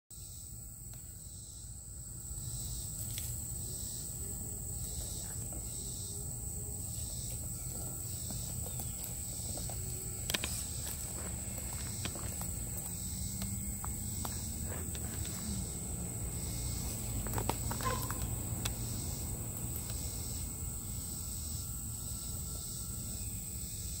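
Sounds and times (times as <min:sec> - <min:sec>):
insects trilling: 0:00.1 - 0:24.0.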